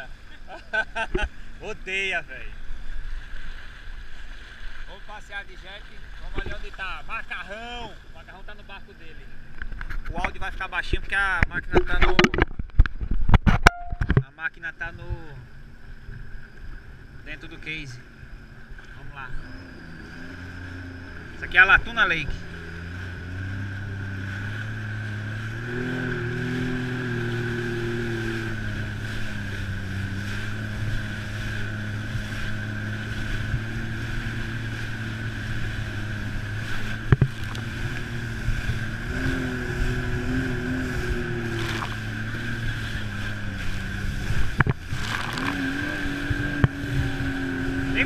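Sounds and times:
muffled jet ski engine: 0.0 - 48.0
water hissing along hull: 15.5 - 48.0.

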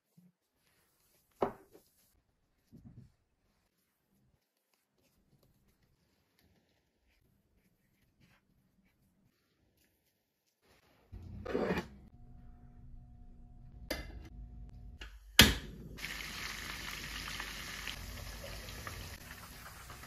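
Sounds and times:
low hum: 11.2 - 16.0
prawns sizzling in hot oil: 16.0 - 20.0.

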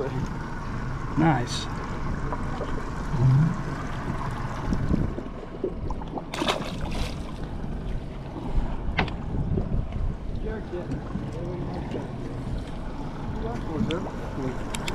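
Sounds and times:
water noise: 0.0 - 14.9
wind: 0.0 - 14.9.

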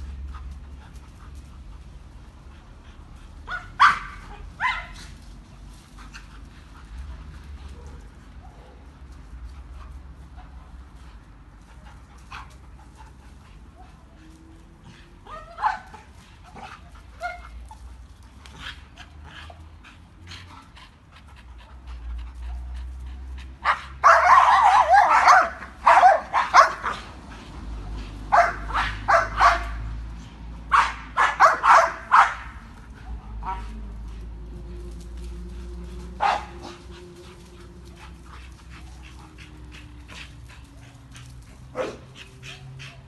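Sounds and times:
dog barking: 3.5 - 5.0, 23.6 - 27.0, 28.3 - 29.8, 30.7 - 32.6, 36.2 - 36.8, 41.8 - 42.0.

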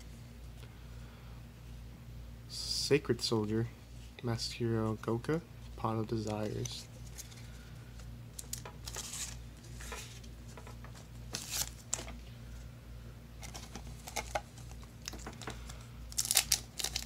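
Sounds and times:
foil wrappers crinkling: 13.4 - 15.5, 16.1 - 17.0.

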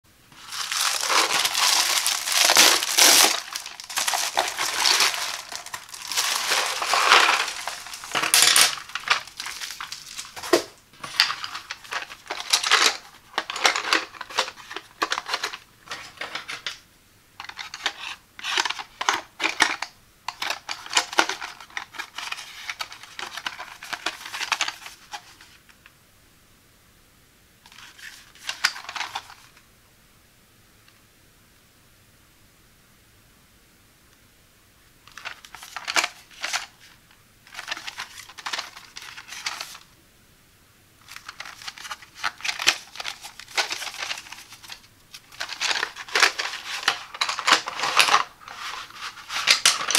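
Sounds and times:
plastic mailer crinkling and tearing: 0.3 - 16.8, 17.4 - 25.6, 35.1 - 39.9, 41.0 - 49.9.

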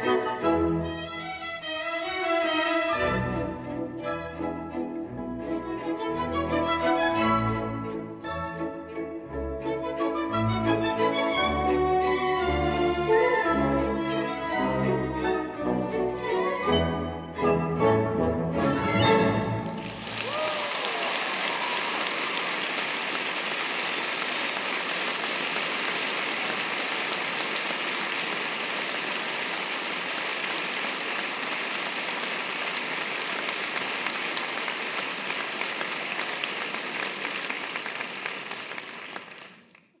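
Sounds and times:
audience applauding: 19.6 - 40.0
whooping cheer: 20.0 - 22.9.

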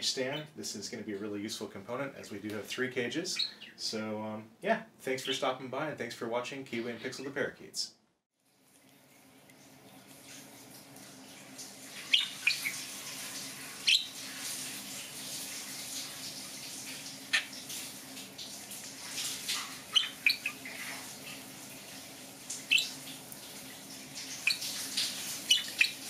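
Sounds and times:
budgerigar chirps and squawks: 3.4 - 3.8, 12.1 - 12.8, 13.9 - 14.1, 19.9 - 20.6, 22.7 - 23.0, 24.5 - 24.7, 25.5 - 26.0
running faucet hiss: 9.5 - 26.0.

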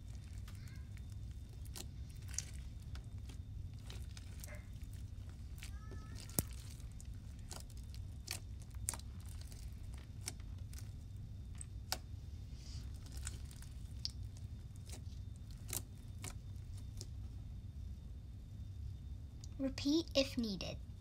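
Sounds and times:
slime clicking and popping: 0.0 - 11.0, 13.0 - 17.1
low hum: 0.0 - 19.6.

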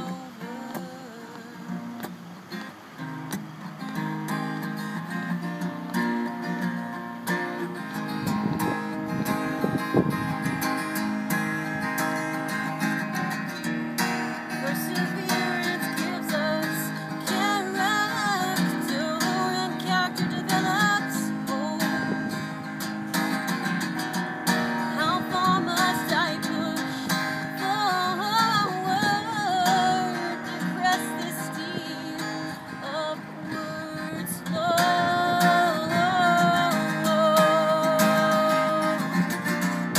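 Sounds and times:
woman singing: 0.0 - 2.1, 14.5 - 22.6, 24.5 - 39.9
acoustic guitar strumming: 0.0 - 39.9.

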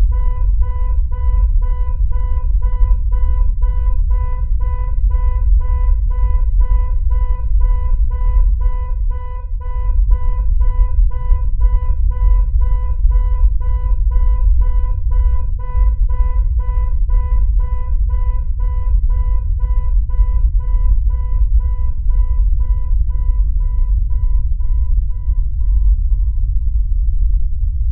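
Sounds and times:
pulsing synthesizer tone: 0.0 - 27.2
deep loud rumble: 0.0 - 27.9.

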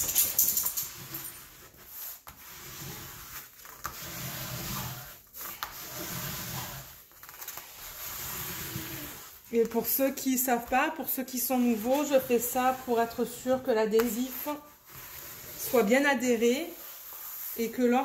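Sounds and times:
ruler scraping plastic film: 0.9 - 10.0.

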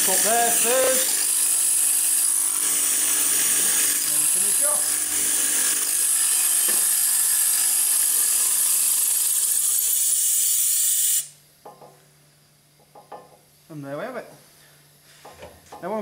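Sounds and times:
compressed air hissing: 9.3 - 11.4.

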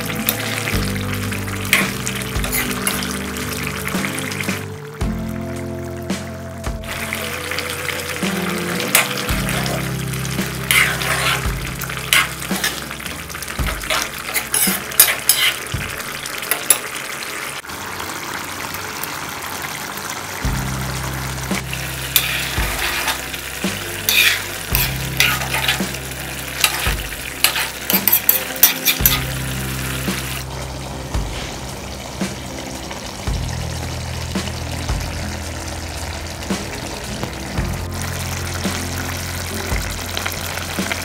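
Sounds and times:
curry sizzling: 0.0 - 41.0
metal ladle scraping pan: 1.7 - 4.6, 8.2 - 17.0, 21.7 - 30.5.

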